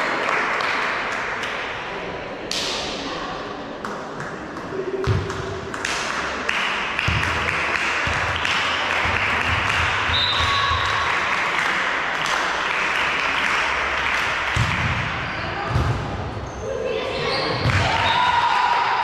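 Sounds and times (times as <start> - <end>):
spectators clapping and cheering: 0.0 - 1.7, 4.2 - 15.2, 17.7 - 19.0.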